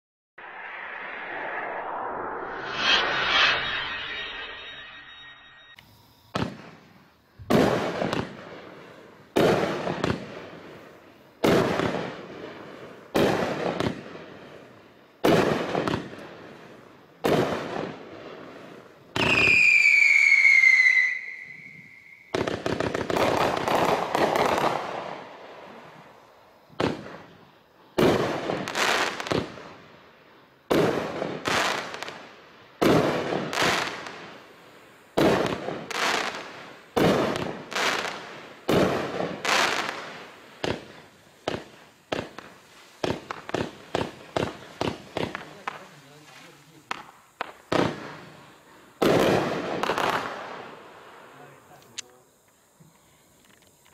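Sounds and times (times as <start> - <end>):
firework crackling: 0.4 - 5.8, 6.4 - 53.9
firework whistle: 0.4 - 8.5, 15.2 - 27.4, 30.7 - 34.5, 35.1 - 50.8
firework bangs: 6.3 - 27.4, 28.0 - 29.8, 30.7 - 34.5, 35.1 - 51.6.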